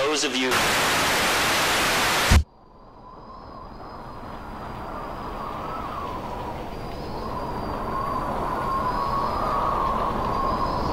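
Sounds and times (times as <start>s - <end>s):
tv static hiss: 0.0s - 2.4s
short low thump: 2.3s - 2.5s.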